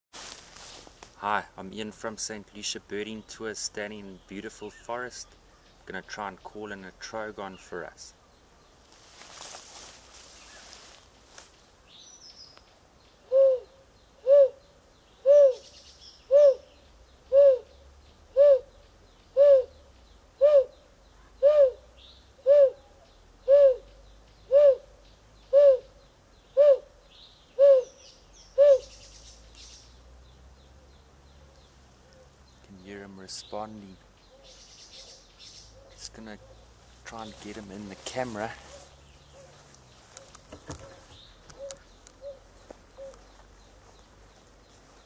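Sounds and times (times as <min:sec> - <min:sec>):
man imitating bird hoots: 0:13.3 - 0:14.6, 0:15.3 - 0:15.7, 0:17.3 - 0:17.7, 0:18.4 - 0:18.7, 0:19.4 - 0:19.8, 0:20.4 - 0:20.8, 0:21.4 - 0:21.8, 0:22.4 - 0:22.9, 0:23.5 - 0:23.9, 0:24.5 - 0:24.9, 0:25.5 - 0:25.9, 0:26.6 - 0:26.9, 0:27.6 - 0:27.9, 0:28.6 - 0:28.9.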